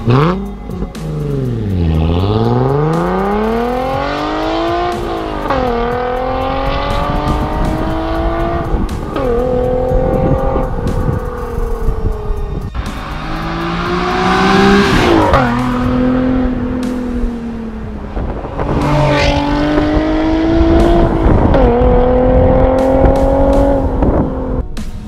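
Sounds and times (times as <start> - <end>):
car engine revving hard: 12.9 - 16.9, 18.2 - 24.6.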